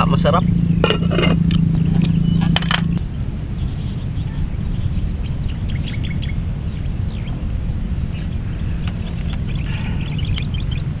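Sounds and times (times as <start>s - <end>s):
low outdoor rumble: 0.0s - 11.0s
small birds chirping: 0.0s - 11.0s
utensil clinking on plate: 0.8s - 1.4s.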